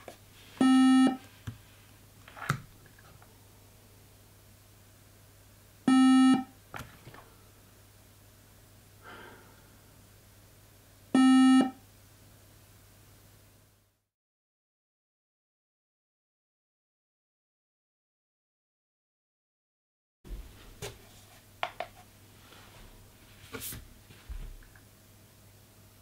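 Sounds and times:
computer warning beep: 0:00.6 - 0:01.2, 0:05.9 - 0:06.5, 0:11.2 - 0:11.8.

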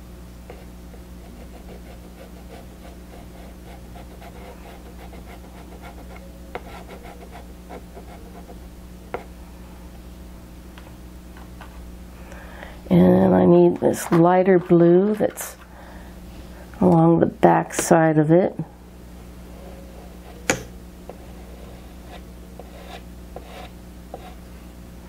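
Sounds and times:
steady low hum: 0:00.0 - 0:25.0
pastel scratching on paper: 0:00.5 - 0:08.6, 0:21.1 - 0:24.4.

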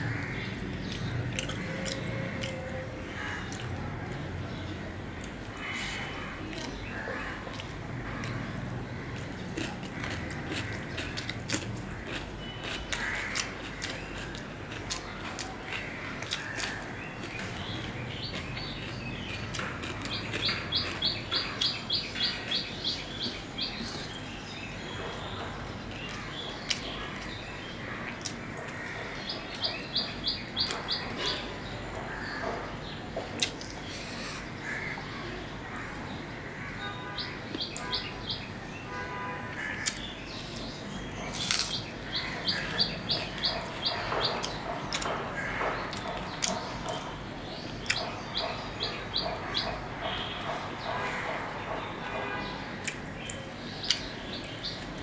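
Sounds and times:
soft chewing: 0:00.8 - 0:04.2, 0:05.2 - 0:22.6, 0:42.4 - 0:47.0, 0:52.8 - 0:54.1
small bird chirping: 0:16.2 - 0:28.4.

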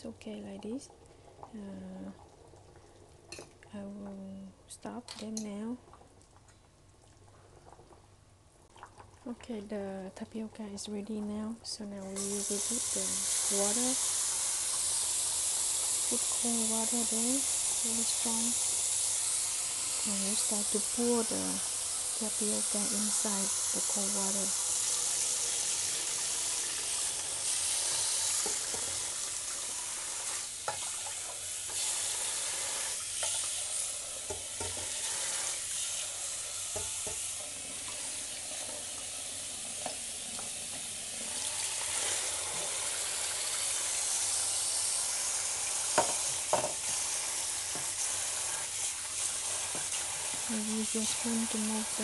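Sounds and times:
tap water running into colander: 0:12.1 - 0:52.0.

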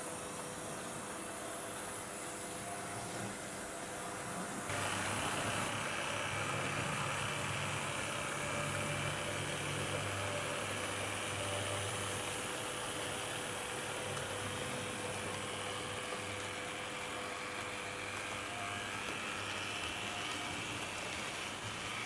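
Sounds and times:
model train motor hum: 0:04.7 - 0:22.0.

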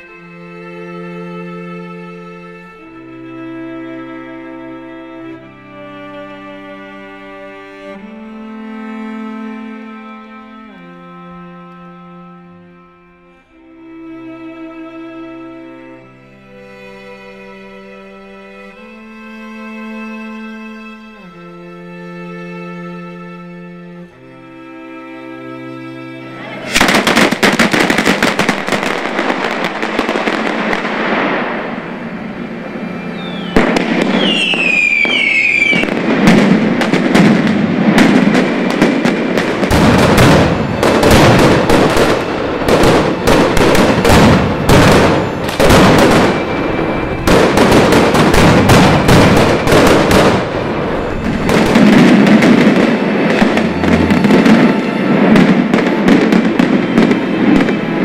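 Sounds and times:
firecrackers crackling: 0:26.5 - 0:58.0
shrill falling whistles: 0:33.0 - 0:35.8
deep booms: 0:33.5 - 0:56.3.

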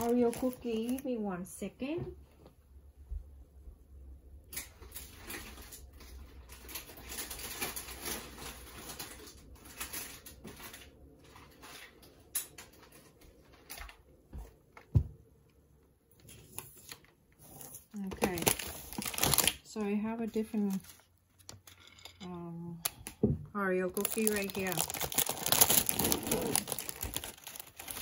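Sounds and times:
packages rustling and scraping: 0:00.0 - 0:01.1, 0:04.6 - 0:14.0, 0:16.2 - 0:19.6, 0:20.3 - 0:22.2, 0:24.0 - 0:28.0.

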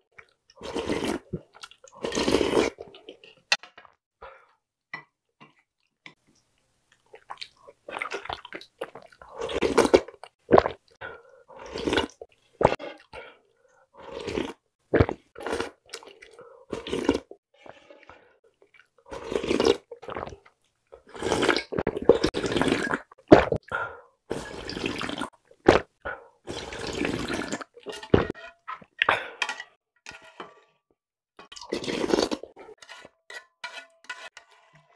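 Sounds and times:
slurping broth: 0:00.5 - 0:03.3, 0:07.2 - 0:13.4, 0:14.0 - 0:28.4, 0:31.4 - 0:32.8
plastic spoon scraping in pot: 0:27.4 - 0:28.9, 0:31.8 - 0:34.9.

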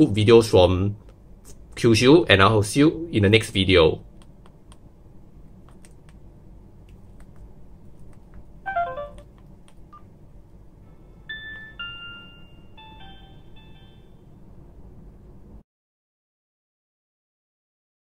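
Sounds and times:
phone electronic melody: 0:08.7 - 0:09.3, 0:11.3 - 0:14.2
phone keypad clicks: 0:08.7 - 0:09.8.

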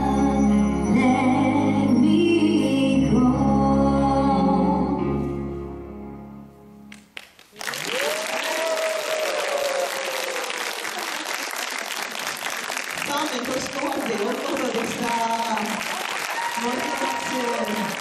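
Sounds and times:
applause: 0:06.9 - 0:18.0
long cheer: 0:07.6 - 0:12.2, 0:15.7 - 0:18.0.

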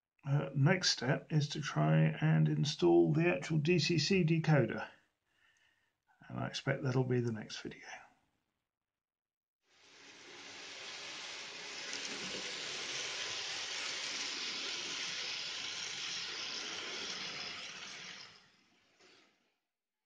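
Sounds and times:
model train running on track: 0:09.9 - 0:19.2.

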